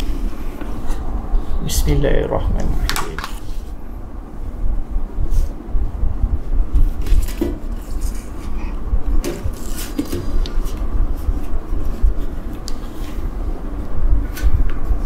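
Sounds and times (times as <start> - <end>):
plastic wrapping rustling: 9.3 - 12.9.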